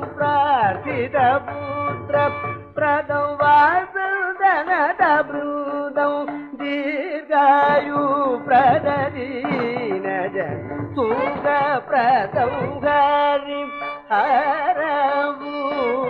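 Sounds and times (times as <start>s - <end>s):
hand drum: 0.0s - 4.0s, 6.2s - 13.1s
man singing: 0.0s - 16.0s
violin: 0.0s - 16.0s.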